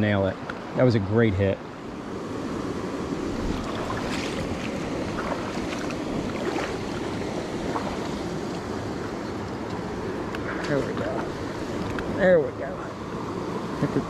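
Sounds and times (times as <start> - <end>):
creek running over rocks: 2.5 - 12.8
faint ticks and splashes: 3.3 - 12.3.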